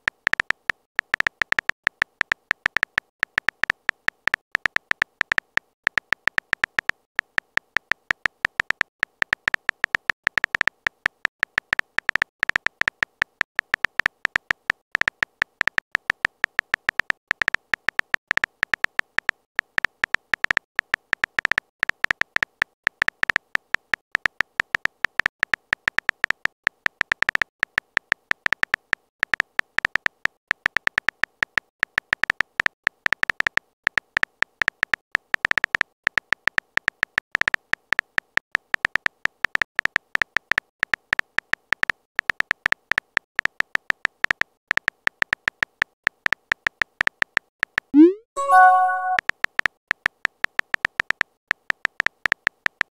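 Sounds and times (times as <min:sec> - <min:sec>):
phone keyboard typing clicks: 0:00.0 - 0:22.3, 0:44.0 - 0:49.2.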